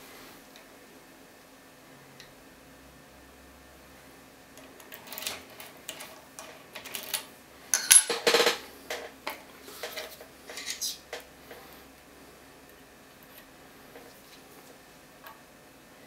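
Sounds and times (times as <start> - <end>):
small metal tools clinking: 7.8 - 8.6.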